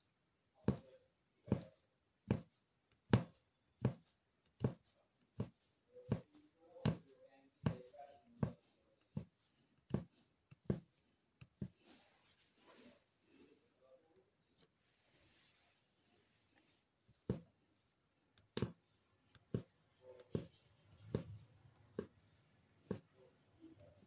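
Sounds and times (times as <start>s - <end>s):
needle tapping through fabric: 0.6s - 12.0s, 16.6s - 17.6s, 18.3s - 24.0s.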